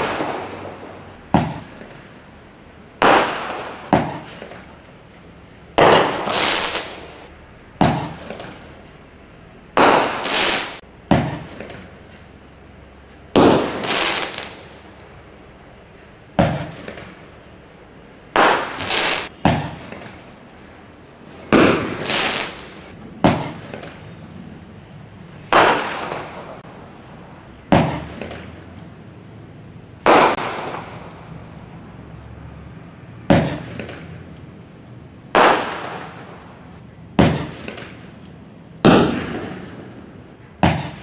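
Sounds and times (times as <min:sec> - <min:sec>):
roman candle firing pops: 0:07.8 - 0:08.5.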